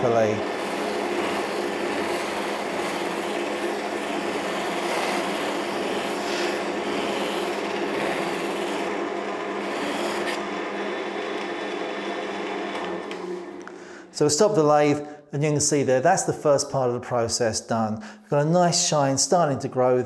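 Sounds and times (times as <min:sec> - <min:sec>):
lathe motor hum: 0:00.0 - 0:14.0
buffing wheel rubbing hiss: 0:06.2 - 0:06.6.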